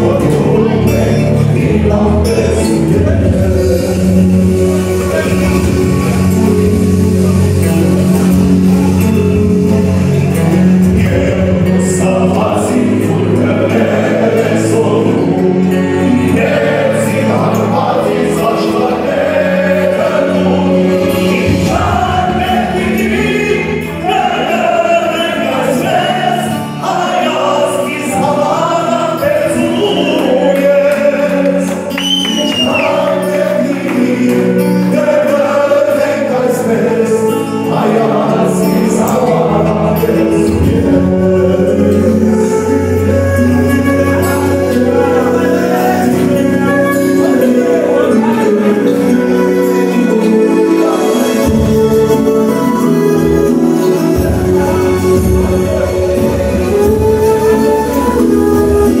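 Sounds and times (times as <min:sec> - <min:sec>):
group of men singing along: 0:00.0 - 0:59.0
man singing into microphone: 0:00.0 - 0:59.0.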